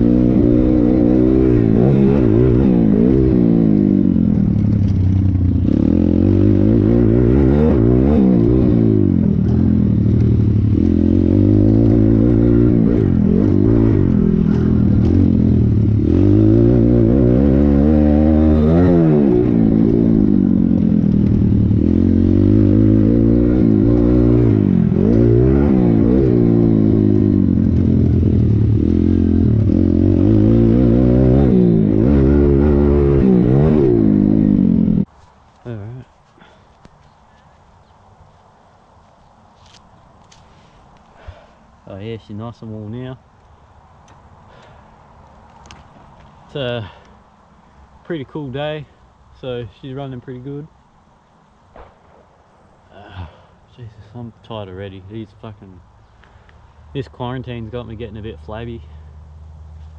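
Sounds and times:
motorbike engine revving: 0:00.0 - 0:35.1.

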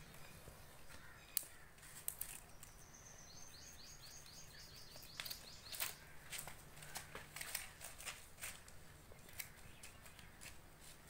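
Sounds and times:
scissors snipping twigs: 0:00.9 - 0:02.8, 0:05.0 - 0:11.0
bird chirping rapidly: 0:02.6 - 0:06.0.

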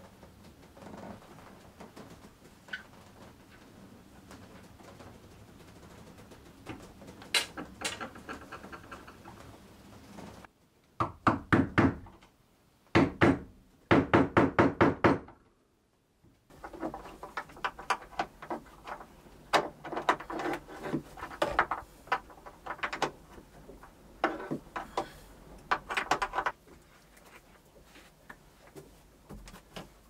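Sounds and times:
irregular knocks and clatter: 0:00.0 - 0:10.5, 0:16.5 - 0:27.4, 0:28.3 - 0:30.0.

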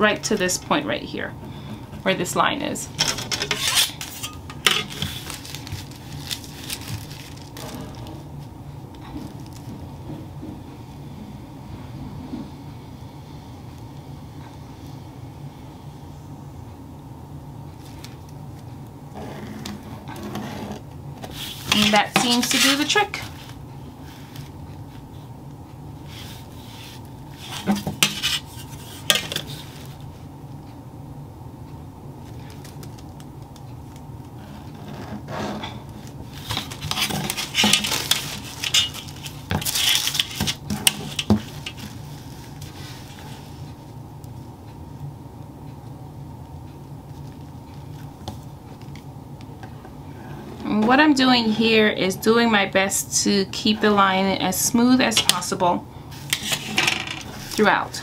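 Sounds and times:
metal ruler clinking and scraping: 0:03.1 - 0:04.9
paper rustling: 0:03.6 - 0:08.2, 0:36.3 - 0:43.6.

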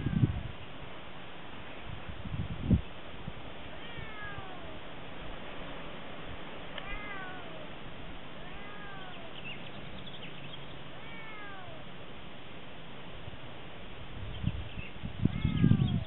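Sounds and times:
cat meowing: 0:03.7 - 0:04.8, 0:06.8 - 0:07.7, 0:08.4 - 0:09.4, 0:10.9 - 0:11.9, 0:15.2 - 0:16.0.

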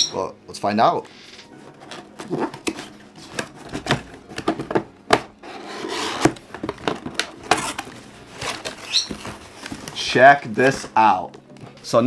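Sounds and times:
cardboard rubbing and scraping: 0:01.7 - 0:04.2, 0:05.4 - 0:10.0
cardboard box taps and knocks: 0:03.4 - 0:05.3, 0:06.2 - 0:07.8.

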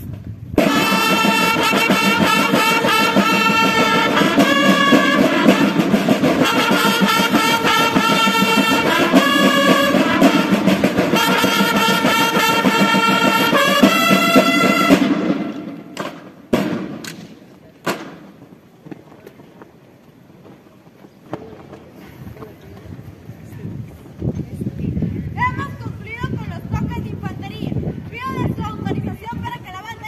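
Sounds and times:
marching drum strokes: 0:00.0 - 0:18.5
bugles sounding chords: 0:00.6 - 0:17.2.

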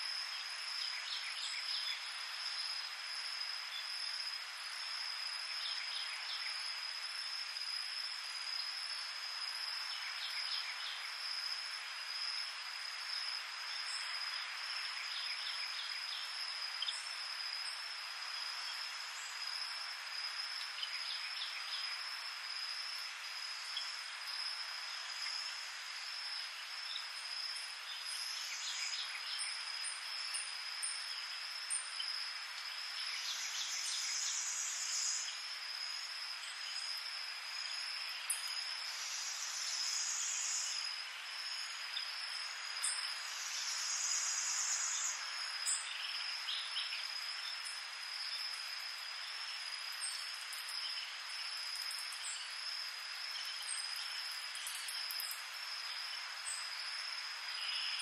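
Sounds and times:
crickets trilling: 0:00.0 - 0:58.0
dense hiss of insect calls: 0:00.0 - 0:58.0
buzzy insect call: 0:08.1 - 0:58.0
short insect chirps: 0:13.8 - 0:58.0.

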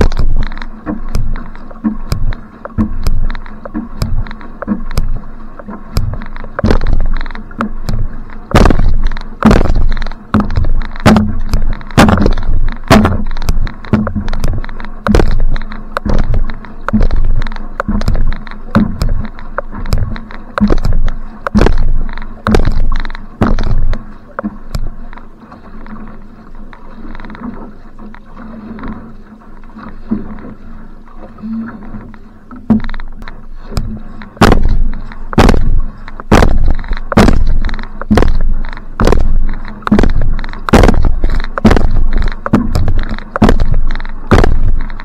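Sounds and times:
paddle strokes splashing: 0:00.0 - 0:45.0
water rushing past hull: 0:00.0 - 0:45.0.

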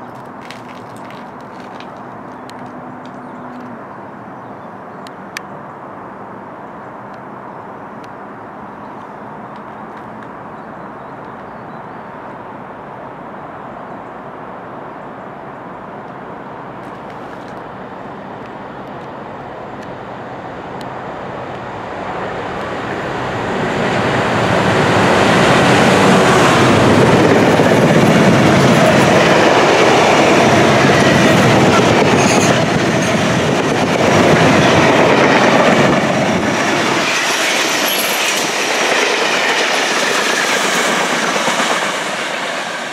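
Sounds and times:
train wagons rolling over rails: 0:00.0 - 0:03.7, 0:22.1 - 0:42.9
diesel locomotive passing: 0:17.6 - 0:42.9.

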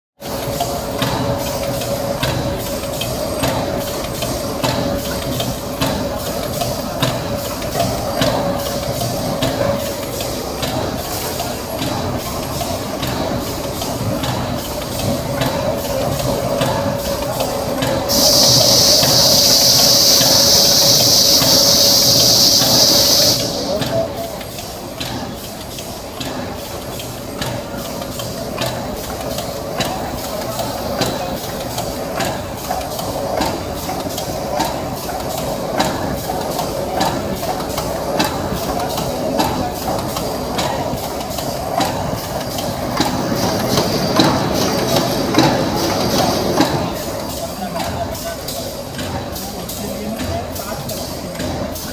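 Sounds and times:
packing machine clacking: 0:22.1 - 0:51.9.

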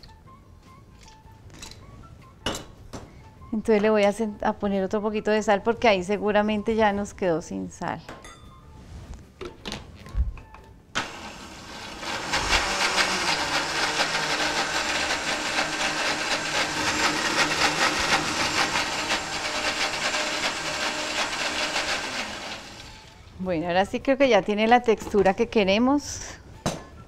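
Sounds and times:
blender running: 0:11.0 - 0:23.2.

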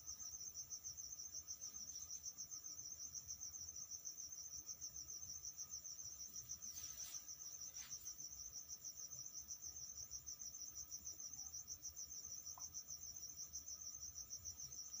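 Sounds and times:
cricket chirping: 0:00.0 - 0:15.0
faint rustle: 0:05.8 - 0:08.8.

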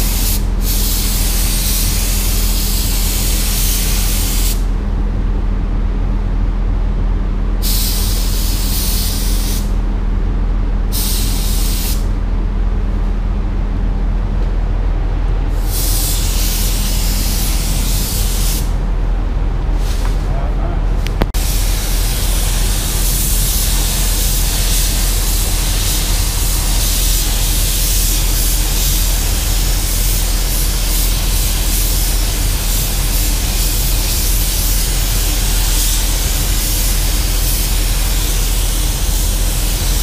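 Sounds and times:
spray gun air hissing: 0:00.0 - 0:04.7, 0:07.6 - 0:09.8, 0:10.9 - 0:12.1, 0:15.5 - 0:18.8, 0:21.4 - 0:40.0
steady low hum: 0:00.0 - 0:40.0.

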